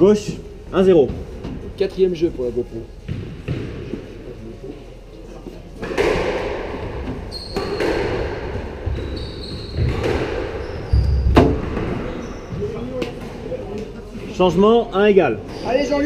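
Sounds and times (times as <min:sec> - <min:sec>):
squash ball hits off walls: 0:03.0 - 0:03.9, 0:05.8 - 0:09.1, 0:09.8 - 0:12.0
shoes squeaking on wooden floor: 0:06.8 - 0:13.2.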